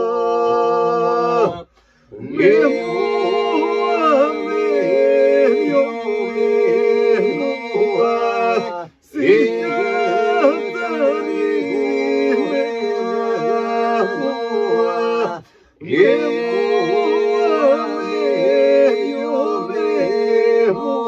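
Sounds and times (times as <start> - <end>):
men singing unaccompanied: 0.0 - 21.0.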